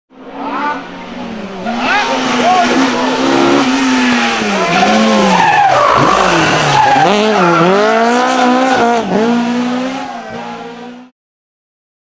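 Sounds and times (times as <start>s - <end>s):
car engine revving hard: 0.4s - 11.1s
tyres squealing: 1.7s - 8.9s.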